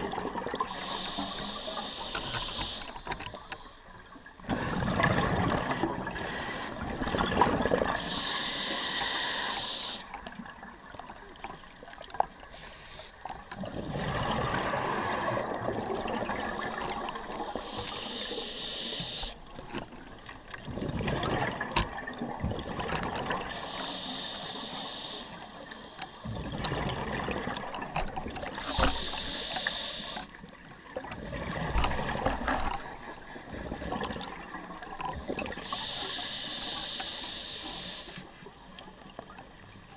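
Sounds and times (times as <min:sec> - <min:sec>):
exhaled bubbles underwater: 0:00.0 - 0:02.9, 0:04.3 - 0:12.5, 0:13.5 - 0:23.6, 0:26.2 - 0:30.1, 0:30.9 - 0:36.0
scuba regulator inhale hiss: 0:00.6 - 0:03.8, 0:07.9 - 0:10.1, 0:12.5 - 0:13.2, 0:16.4 - 0:19.4, 0:23.5 - 0:26.2, 0:28.6 - 0:30.4, 0:35.6 - 0:38.4.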